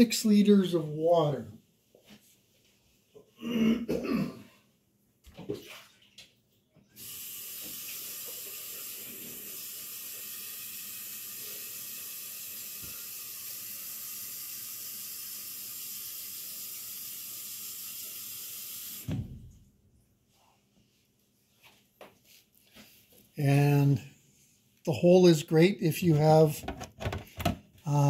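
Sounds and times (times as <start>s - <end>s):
water running: 5.3s - 19.3s.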